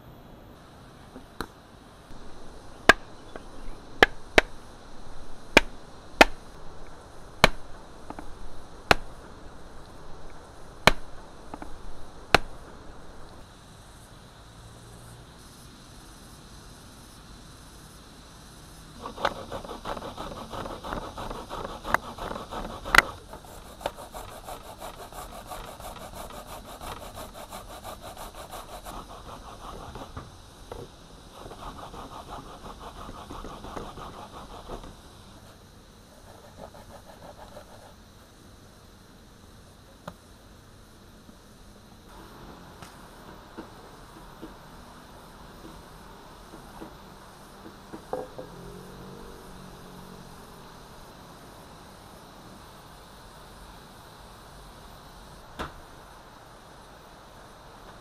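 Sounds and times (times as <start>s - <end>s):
coconut shell being struck: 2.9s - 3.2s, 5.5s - 6.4s, 7.4s - 8.3s, 8.9s - 9.2s, 10.8s - 11.7s, 12.3s - 12.6s
scratchy rasp with fine ticking: 19.0s - 38.0s.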